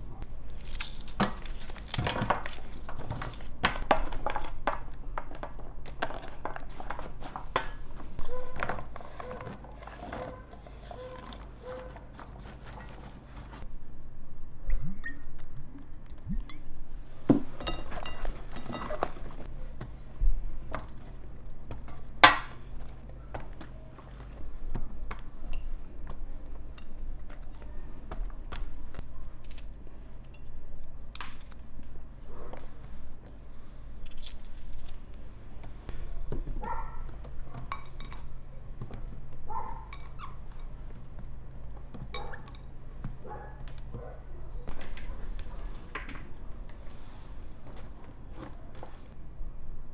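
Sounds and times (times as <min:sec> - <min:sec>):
steady low hum: 0:00.0 - 0:49.9
glass bowl clinking: 0:17.5 - 0:19.2.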